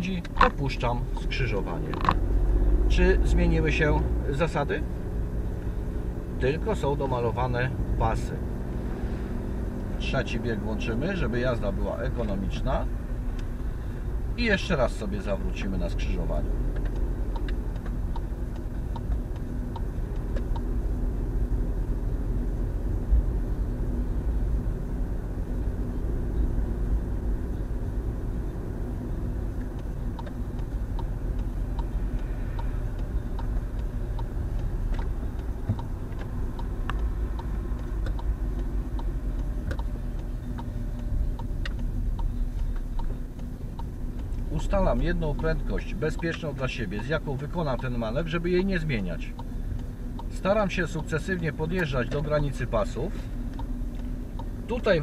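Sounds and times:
car engine and road drone: 0.0 - 55.0
faint clicks: 16.7 - 20.7, 29.5 - 44.5.

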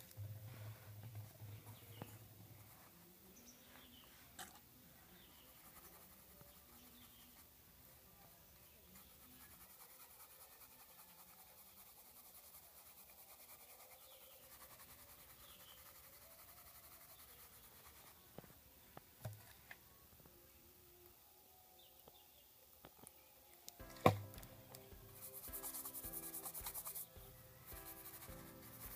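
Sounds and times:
paintbrush scrubbing circuit board: 5.1 - 7.6, 8.7 - 18.3, 24.8 - 28.9.

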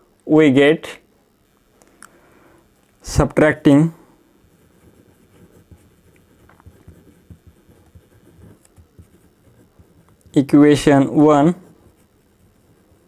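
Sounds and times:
pen scratching on paper: 4.4 - 13.0.

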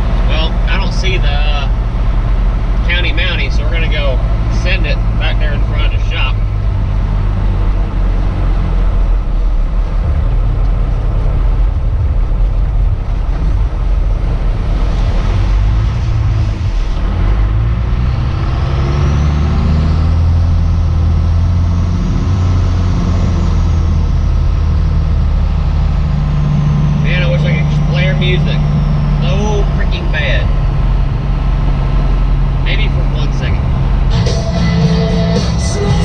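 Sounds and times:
diesel truck engine from inside cab: 0.0 - 36.0
high whine rising in pitch: 13.6 - 36.0.

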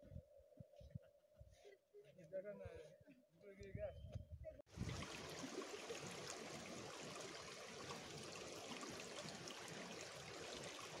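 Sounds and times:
stream flowing over pebbles: 4.7 - 11.0.

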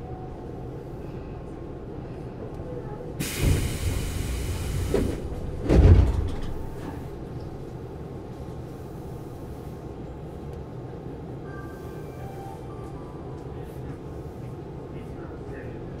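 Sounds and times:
air hiss of train doors: 3.2 - 7.1
train doors thudding shut: 3.2 - 7.2.

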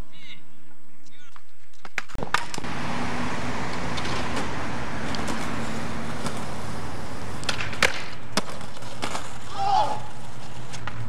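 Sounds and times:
road traffic rumble and hiss: 2.4 - 11.0
faint held engine tone: 2.6 - 7.8.

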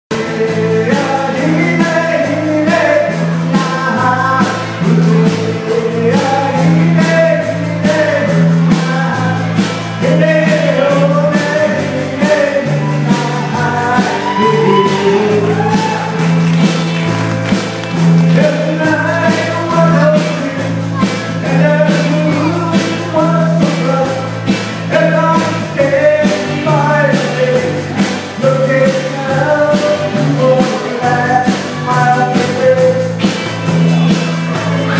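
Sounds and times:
live country band playing: 0.1 - 34.9.

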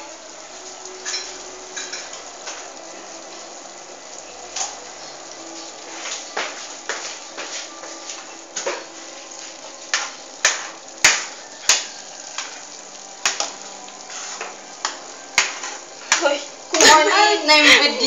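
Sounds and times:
faint pan sizzle: 0.0 - 18.0.

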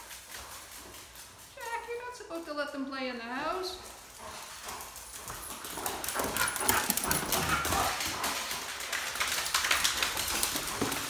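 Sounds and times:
dog claws clattering on tile: 4.6 - 11.0.

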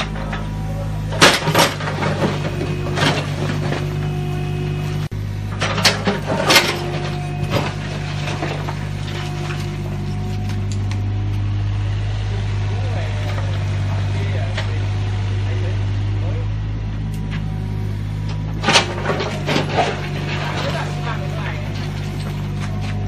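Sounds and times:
diesel engine running: 0.0 - 23.0
bricks and debris clattering: 1.1 - 4.1, 5.5 - 10.7, 18.6 - 23.0.

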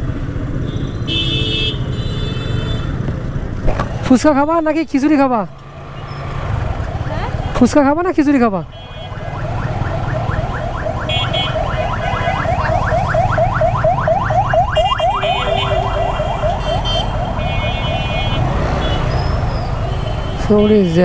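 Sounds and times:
idling engines in traffic: 0.0 - 21.0
siren rapid rising chirp: 8.8 - 19.9.

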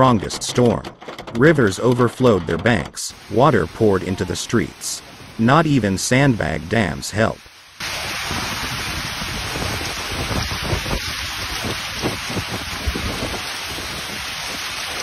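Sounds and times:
heavy rain pelting: 1.4 - 15.0
wind buffeting microphone: 7.8 - 15.0.

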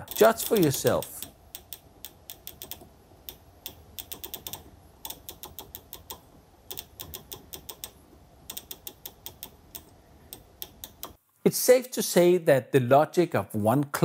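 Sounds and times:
rotary dial detent clicks: 0.0 - 11.2.

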